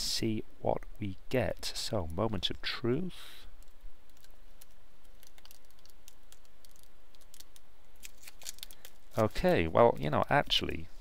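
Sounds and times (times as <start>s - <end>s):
plastic film peeling crackles: 3.6s - 10.8s.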